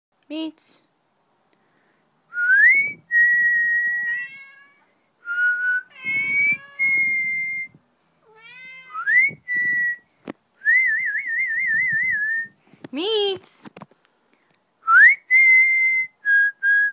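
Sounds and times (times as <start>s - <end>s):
person whistling: 2.4s - 4.0s, 14.8s - 16.9s
cat meowing: 3.9s - 4.9s, 5.9s - 6.9s, 8.2s - 9.1s.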